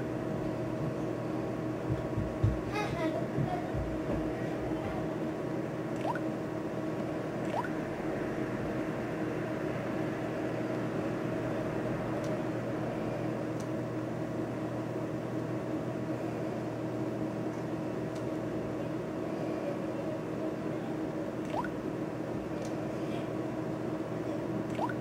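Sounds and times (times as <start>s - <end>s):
low background hum: 0.0s - 25.0s.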